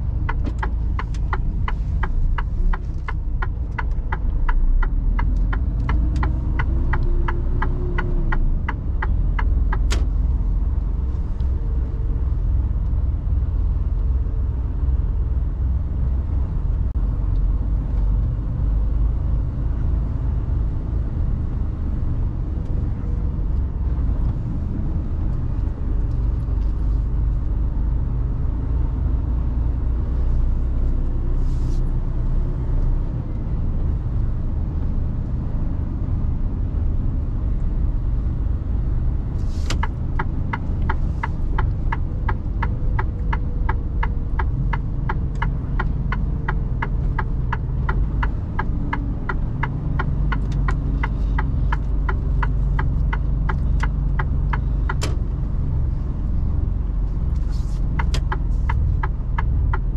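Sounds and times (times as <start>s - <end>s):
turn signal ticking: 0.0s - 14.9s, 21.0s - 31.3s, 38.6s - 59.9s
truck engine and tyres rumbling: 0.0s - 59.9s.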